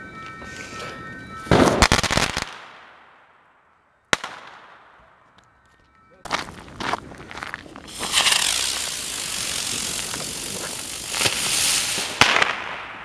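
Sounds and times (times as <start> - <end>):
pyrotechnics hissing and crackling: 7.8 - 12.7
firecracker pops: 7.9 - 8.8, 10.0 - 12.8.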